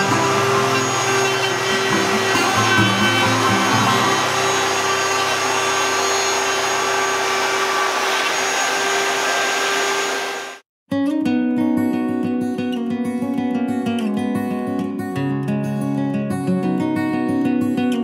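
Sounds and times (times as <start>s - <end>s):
router whining: 0.0s - 10.6s.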